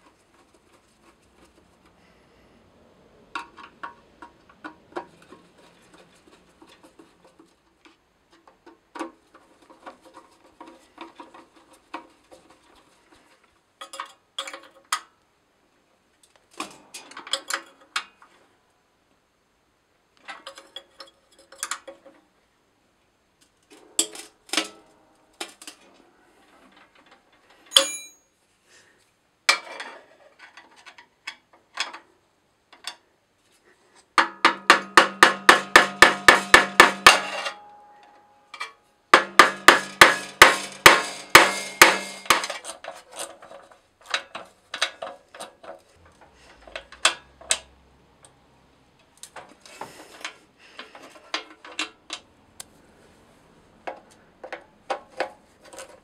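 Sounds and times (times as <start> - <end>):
tool clinking on metal: 27.7 - 28.2.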